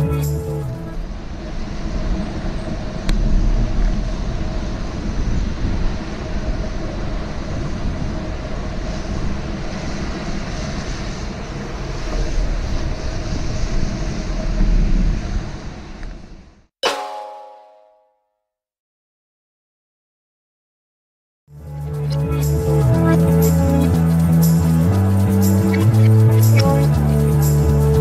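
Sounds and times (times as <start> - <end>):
passing traffic: 0.0 - 16.2, 21.5 - 28.0
wind rumbling on microphone: 0.0 - 16.6.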